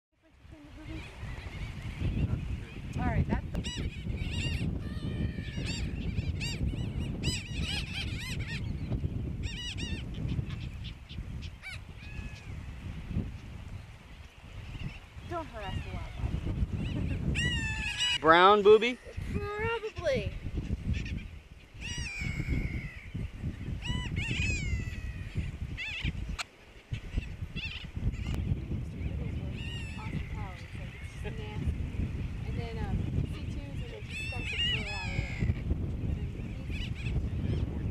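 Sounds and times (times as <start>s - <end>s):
wind rumbling on microphone: 0.1s - 37.9s
seabirds calling: 0.3s - 37.9s.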